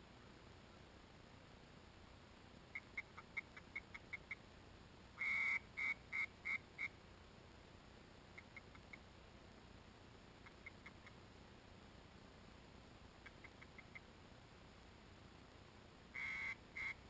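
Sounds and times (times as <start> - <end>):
faint muffled duck quacks: 5.2 - 7.0, 16.2 - 17.0.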